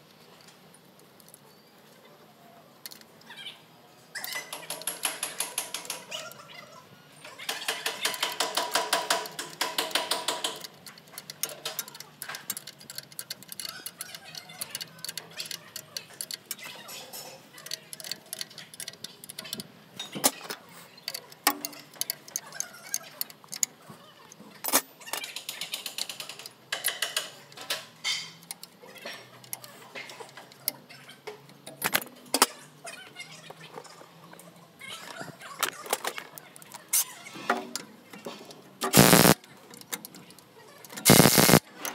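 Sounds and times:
ratchet wrench clicking: 7.7 - 16.8, 17.5 - 19.6, 38.9 - 39.4, 41.0 - 41.6
tool clicks: 38.8 - 40.1, 40.9 - 41.9.

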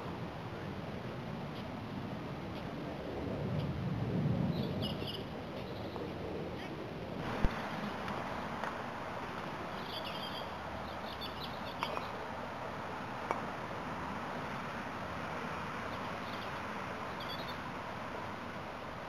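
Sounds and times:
background hiss: 0.0 - 19.0
bird chirps: 4.5 - 6.0, 9.7 - 12.2, 15.9 - 17.6.

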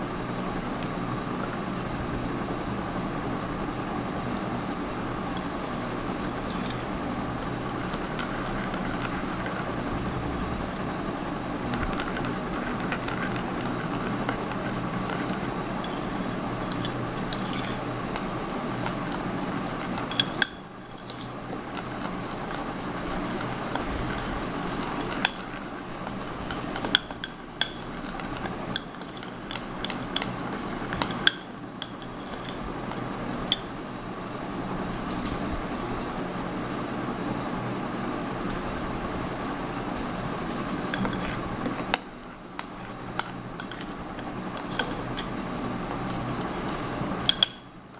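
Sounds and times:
steady background hum: 0.0 - 47.9
spoon clinking in a glass bowl: 15.8 - 17.8, 20.0 - 21.3, 26.8 - 27.9, 28.7 - 30.3, 30.9 - 32.6, 33.5 - 33.7, 47.2 - 47.8.

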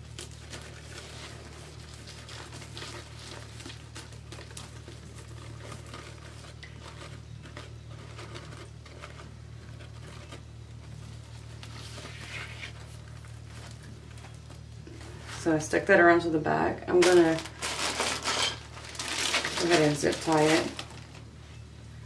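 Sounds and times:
steady low hum: 0.0 - 22.0
mesh and fabric rustling: 16.9 - 21.6.

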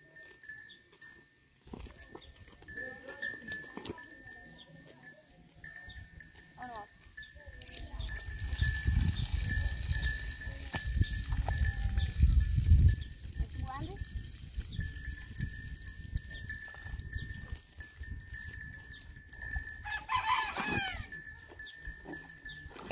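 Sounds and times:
livestock bleating: 20.0 - 21.2.

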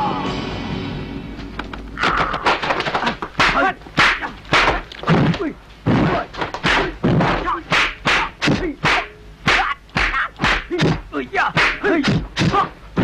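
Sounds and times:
shouted grunts: 9.5 - 12.8.

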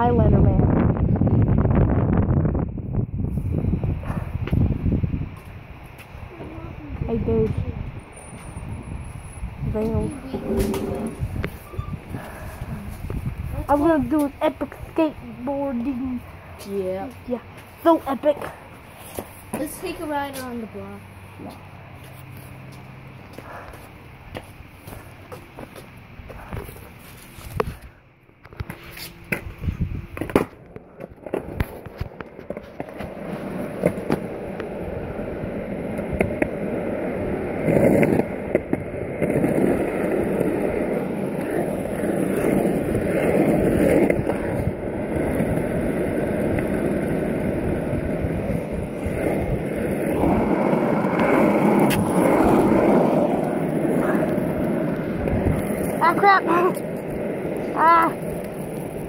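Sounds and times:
skateboard wheels rolling on asphalt: 0.0 - 59.0.

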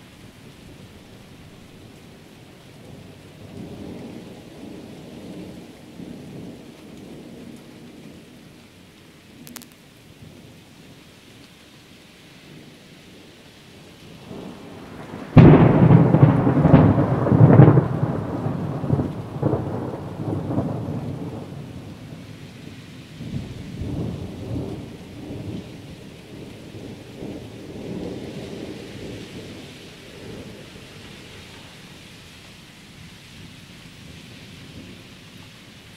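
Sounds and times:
rain hissing: 0.0 - 35.9
thunder cracking and rumbling: 14.2 - 22.2, 23.2 - 30.6.

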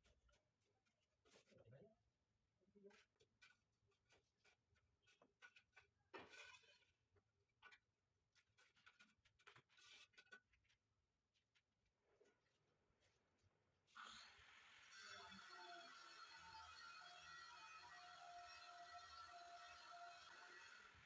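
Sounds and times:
trowel scraping mortar: 3.0 - 7.0, 8.4 - 10.5.

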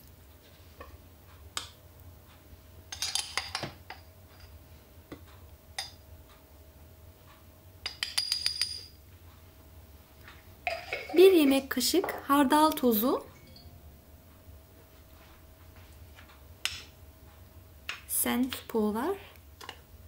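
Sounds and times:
metal teaspoon clinking on glass: 7.8 - 9.0.

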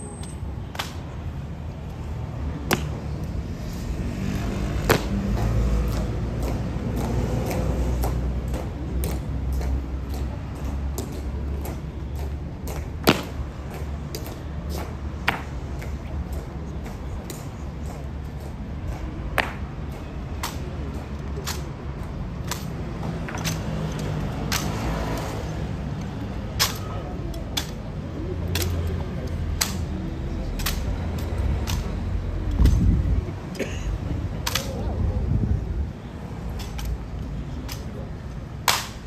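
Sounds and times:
murmuring crowd: 0.0 - 39.0
boots striking pavement: 2.6 - 16.0, 17.9 - 20.7.

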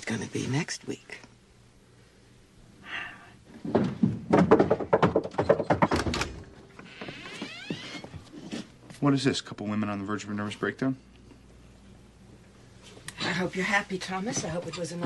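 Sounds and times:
thuds and knocks: 3.6 - 6.5
door hinge squeaking: 7.2 - 8.1.

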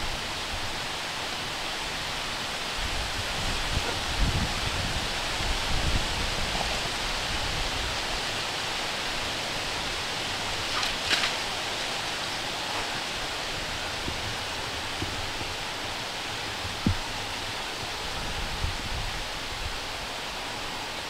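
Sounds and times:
wind through trees and grass: 0.0 - 21.0
wind buffeting microphone: 2.7 - 8.3, 9.0 - 20.2
sharp rustle: 10.5 - 15.6.

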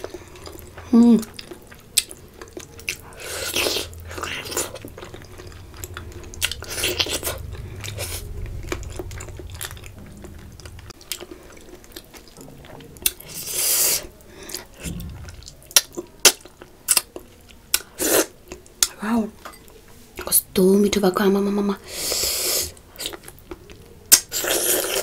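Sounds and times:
chewing and crunching: 0.0 - 9.8.

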